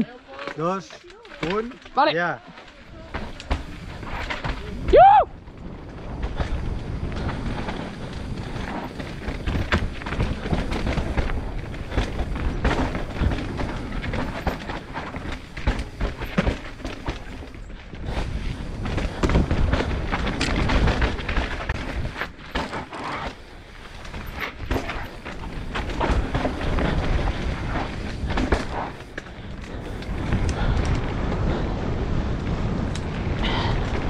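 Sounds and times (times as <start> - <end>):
wheels knocking on rocks: 0.0 - 34.0
wind noise: 2.8 - 34.0.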